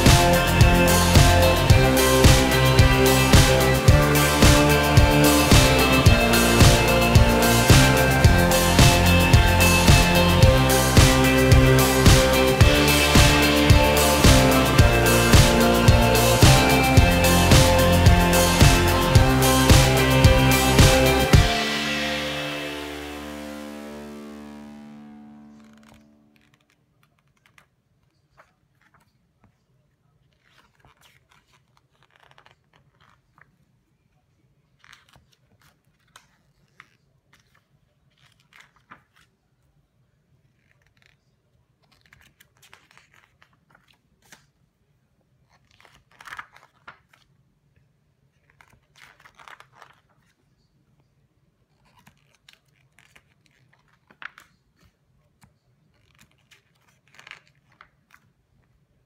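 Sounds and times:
book pages turning: 25.6 - 39.7, 40.4 - 44.6, 45.4 - 50.5, 51.7 - 58.7.

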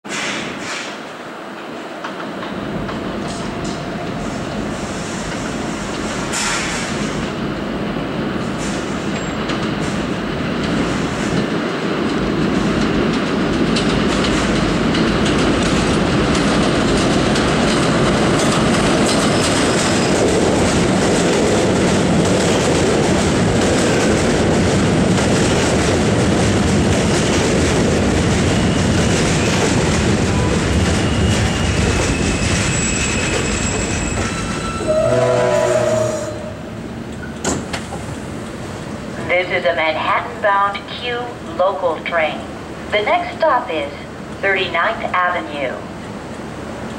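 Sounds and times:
train wheels clattering and squealing: 0.1 - 1.0, 2.0 - 7.4, 8.4 - 11.5, 12.4 - 38.6.

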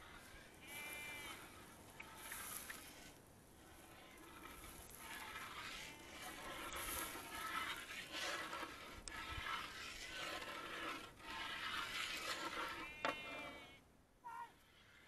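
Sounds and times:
metal spatula scraping syrup: 0.0 - 13.8
pitched animal call: 12.8 - 15.0.

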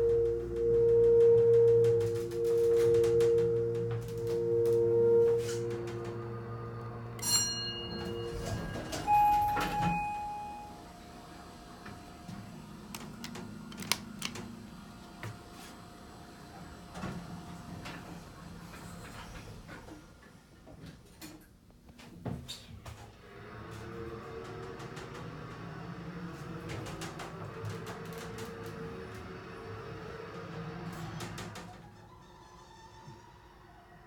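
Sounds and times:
steady electronic tone: 0.0 - 11.0
elevator doors closing with clicks: 0.0 - 15.0, 23.4 - 33.1
elevator running hum: 0.0 - 20.4, 23.2 - 33.8
brief beep: 7.9 - 10.8.

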